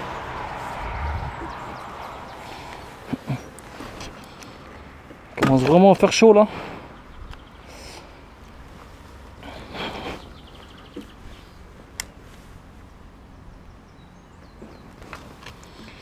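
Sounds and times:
steady low hum: 0.0 - 3.4
faint birdsong: 0.0 - 16.0.

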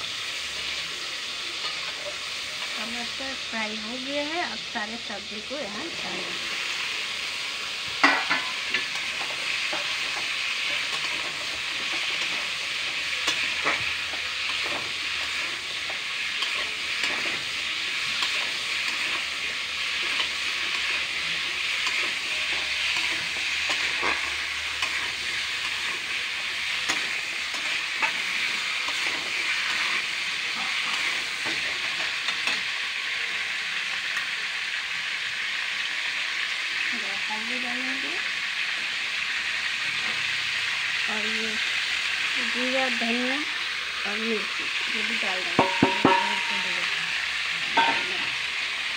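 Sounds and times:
vegetables sizzling in hot oil: 0.0 - 48.9
spatula scraping and clinking pan: 8.0 - 26.2, 45.6 - 46.9, 47.8 - 48.3.

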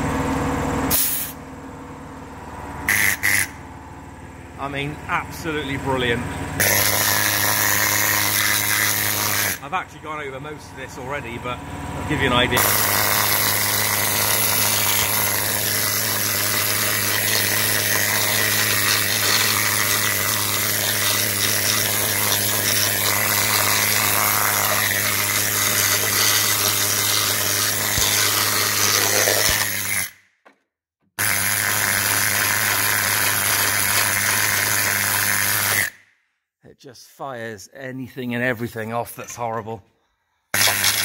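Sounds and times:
needle scaler hammering metal: 2.9 - 3.6, 6.6 - 9.6, 12.6 - 30.2.

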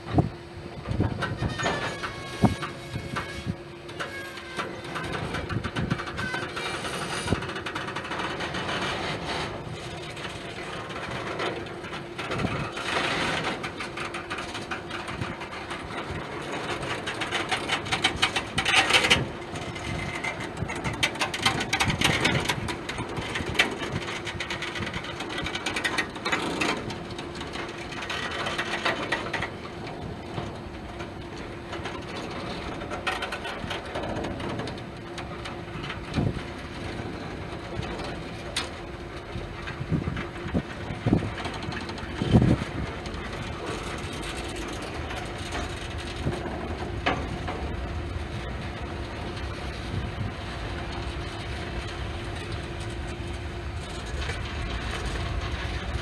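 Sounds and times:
steel wheels rumbling on rails: 0.0 - 56.0
wheel squeals: 1.3 - 5.3, 6.0 - 7.3.

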